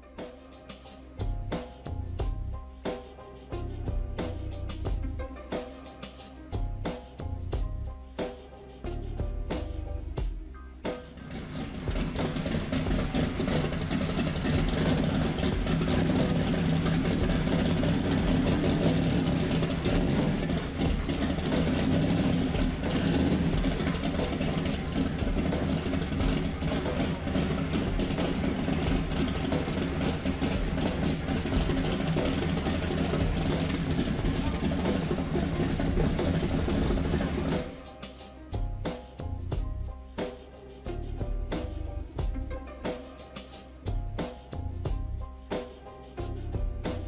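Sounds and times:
car engine idling: 0:10.9 - 0:37.9.

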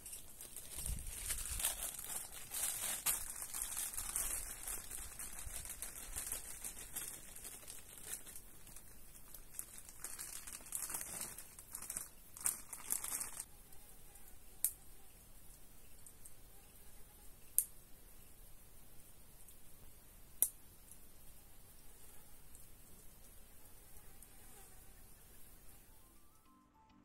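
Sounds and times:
plastic bag crinkling: 0:00.0 - 0:13.5.

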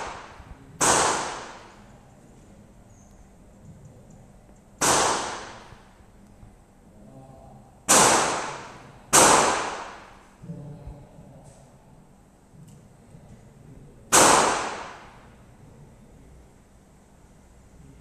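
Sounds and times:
pistol shots echoing: 0:00.0 - 0:01.7, 0:04.8 - 0:05.7, 0:07.9 - 0:10.2, 0:14.1 - 0:15.2.

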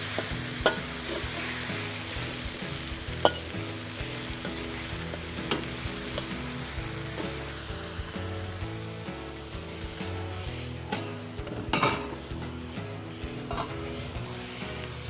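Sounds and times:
metal spatula scraping a wok: 0:00.0 - 0:08.2
vegetables sizzling in a wok: 0:00.0 - 0:15.0.

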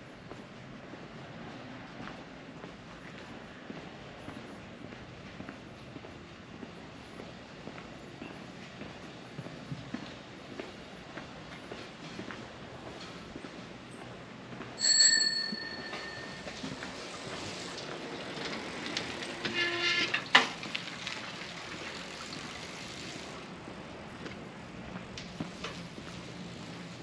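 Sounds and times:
bright metallic ring: 0:14.8 - 0:16.9.

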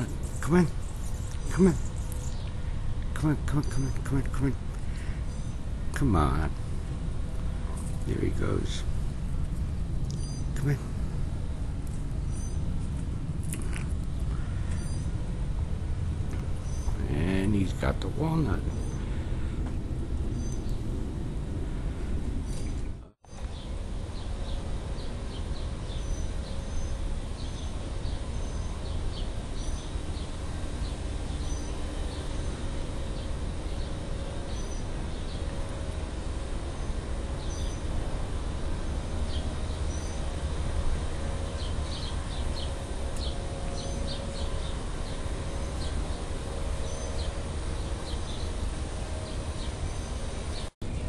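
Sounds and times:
low rumbling background noise: 0:00.0 - 0:51.0
high bird chirps: 0:10.1 - 0:10.6.

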